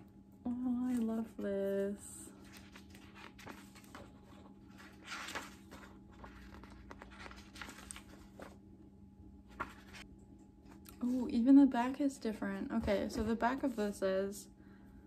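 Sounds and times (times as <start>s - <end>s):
faint steady hum: 0.0s - 15.0s
book pages rustling: 0.9s - 8.6s, 9.5s - 10.1s.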